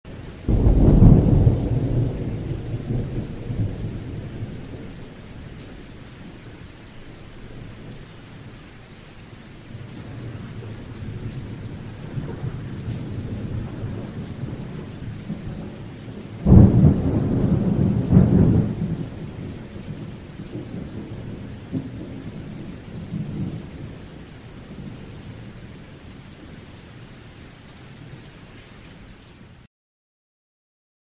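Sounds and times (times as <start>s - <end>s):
thunder rumbling: 0.1s - 6.5s, 9.7s - 24.1s
steady rain: 0.1s - 29.7s.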